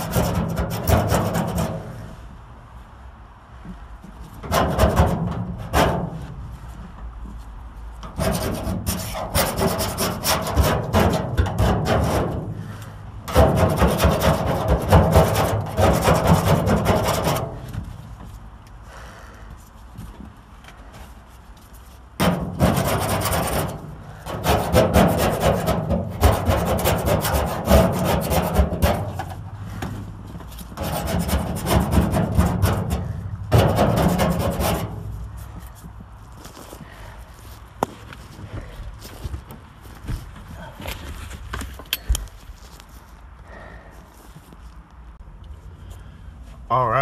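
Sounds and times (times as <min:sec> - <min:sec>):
scraper rasping on steel panel: 0:00.0 - 0:02.1, 0:08.0 - 0:12.5, 0:13.3 - 0:17.8, 0:22.2 - 0:29.5, 0:30.4 - 0:35.9.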